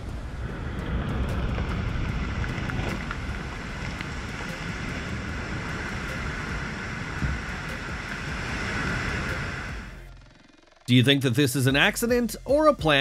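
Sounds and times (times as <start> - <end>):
wind buffeting microphone: 0.0 - 10.0
low rumble of rock blast: 0.0 - 10.3.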